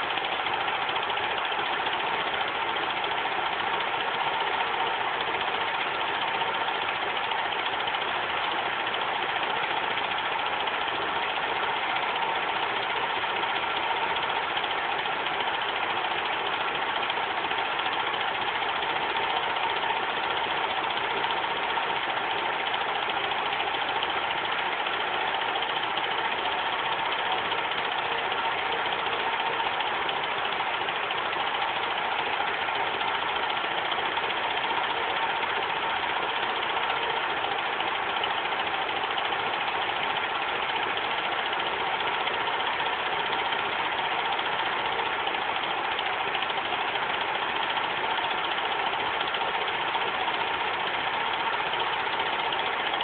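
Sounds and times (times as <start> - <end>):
film projector whirring: 0.0 - 53.0.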